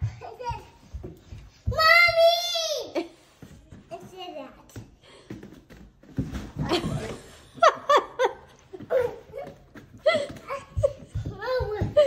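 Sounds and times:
bodyboard bumping down stairs: 0.0s - 2.6s, 8.7s - 12.0s.

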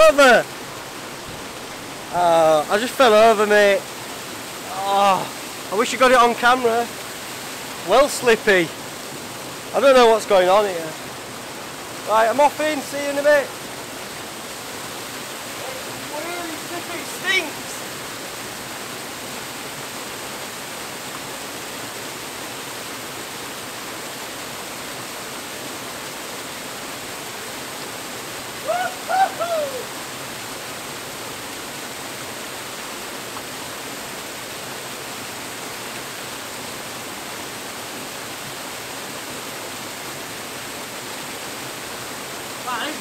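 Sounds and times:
man giving wordless cry: 0.0s - 0.4s, 28.6s - 29.9s
waterfall pouring into pool: 0.0s - 43.0s.

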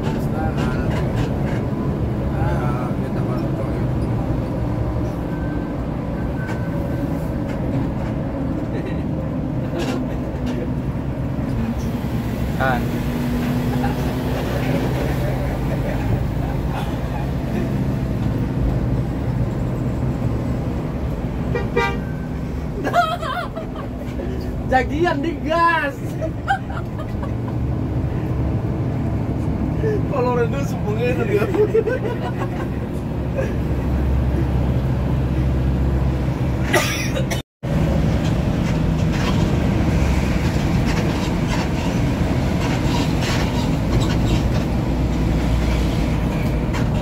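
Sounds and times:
bus engine drone: 0.0s - 47.0s
road noise: 0.0s - 47.0s
vehicle horn toot: 21.5s - 22.2s.

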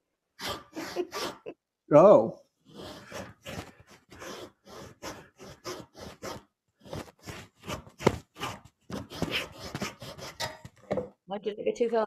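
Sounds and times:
handsaw cutting wood: 0.4s - 1.5s, 2.6s - 10.8s.

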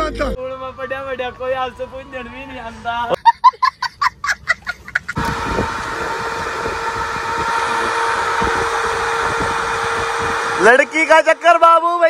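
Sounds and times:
tractor engine running: 5.2s - 12.0s.

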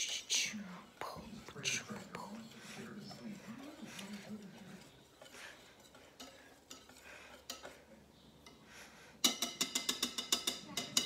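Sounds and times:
soft scraping in bowl: 0.5s - 8.6s
utensil clinking against bowl: 1.0s - 8.6s, 9.2s - 11.0s.

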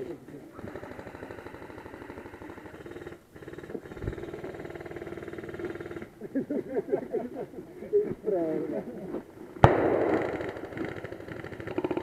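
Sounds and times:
airsoft gun firing full auto: 9.6s - 12.0s.

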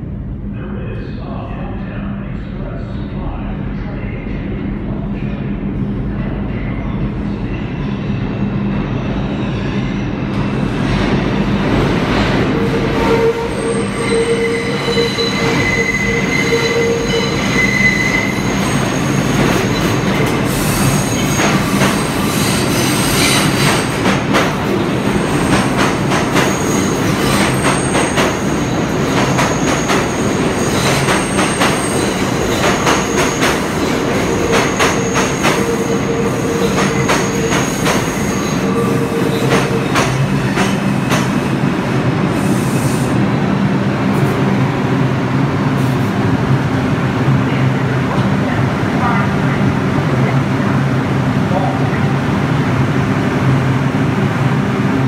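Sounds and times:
rumble of subway cars: 0.0s - 55.0s
train wheels squealing on rails: 12.5s - 24.0s, 26.4s - 41.3s.

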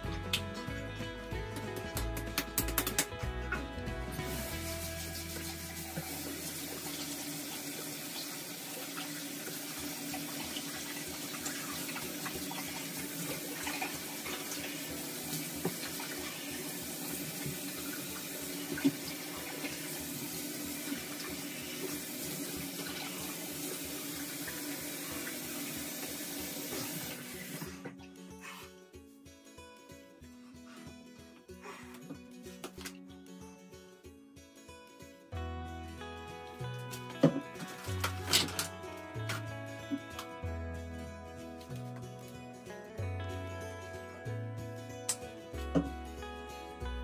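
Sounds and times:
tap running into sink: 4.3s - 20.1s.

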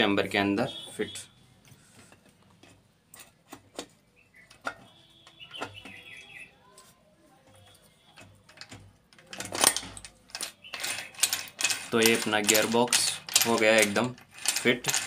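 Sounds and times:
metal gears clicking and knocking: 7.6s - 15.0s
loud metallic rattle: 9.3s - 15.0s.

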